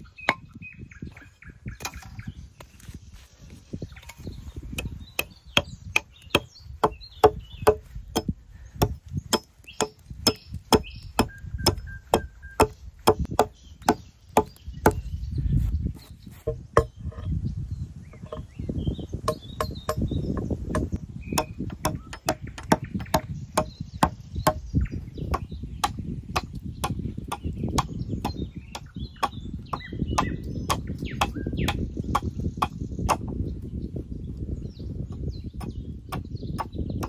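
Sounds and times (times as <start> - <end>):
birds chirping faintly: 0.0 - 37.0
tool striking wood: 4.8 - 15.0, 19.2 - 24.6, 25.3 - 27.0.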